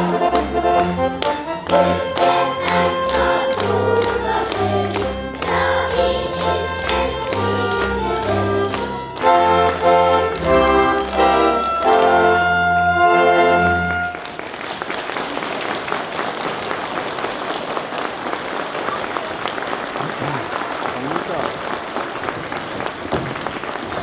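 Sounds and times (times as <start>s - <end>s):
instrumental accompaniment: 0.0s - 14.5s
children singing: 1.7s - 8.8s
audience applause: 1.7s - 24.0s.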